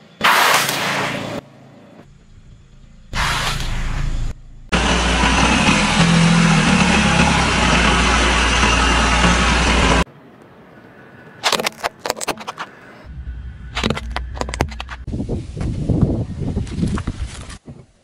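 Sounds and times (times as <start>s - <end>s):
car engine running: 2.0s - 10.0s.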